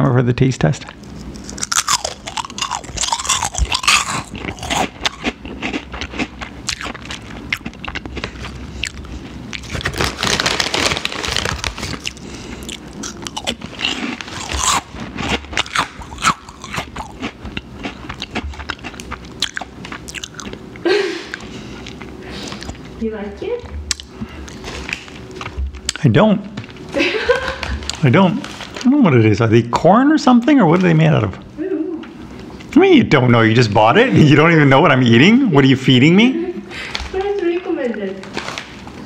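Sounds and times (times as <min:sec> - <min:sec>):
person crunching chips: 0:01.1 - 0:20.6, 0:23.9 - 0:25.2.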